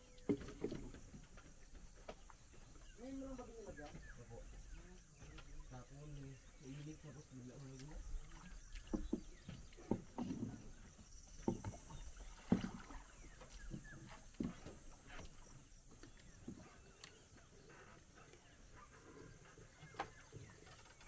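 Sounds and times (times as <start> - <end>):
paddle splashing water: 0.0 - 21.0
wood knocking against hull: 0.2 - 5.8, 7.8 - 16.8.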